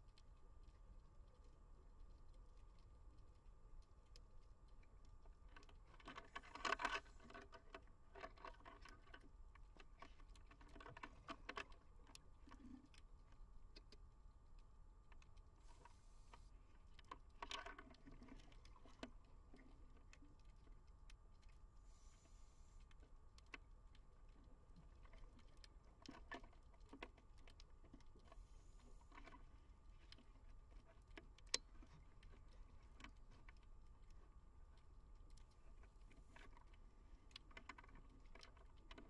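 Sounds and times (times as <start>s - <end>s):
faint regulator hiss: 15.6s - 16.8s, 21.8s - 22.9s, 28.2s - 29.3s.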